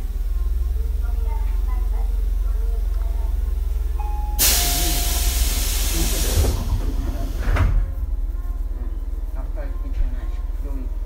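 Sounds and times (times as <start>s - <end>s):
compressed air hiss: 4.4s - 7.4s.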